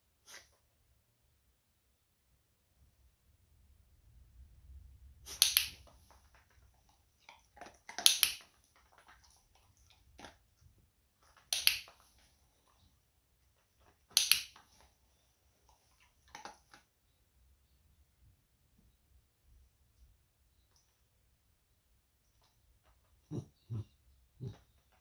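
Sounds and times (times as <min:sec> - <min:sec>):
dog crunching treats: 0:05.6 - 0:10.5.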